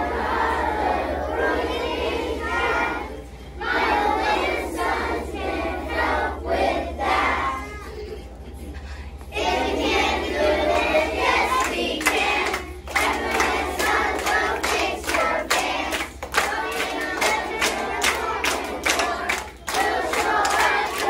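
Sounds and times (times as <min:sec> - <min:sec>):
children singing in unison: 0:00.0 - 0:07.8, 0:09.3 - 0:21.0
children clapping in rhythm: 0:10.6 - 0:21.0.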